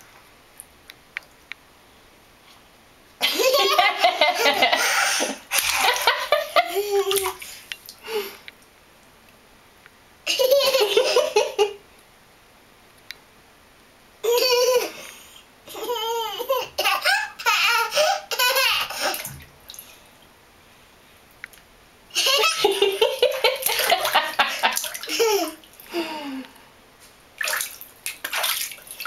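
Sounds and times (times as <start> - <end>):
toddler laughing and vocalizing: 15.7 - 19.3, 24.9 - 25.6.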